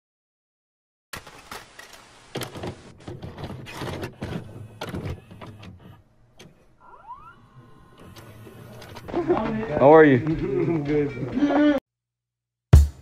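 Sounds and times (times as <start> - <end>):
tape mechanism clicks and clunks: 1.2 - 9.2.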